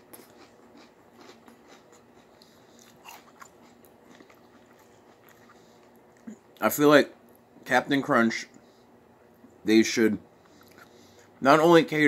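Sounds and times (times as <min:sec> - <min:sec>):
chewing cereal crunching: 0:00.0 - 0:06.7.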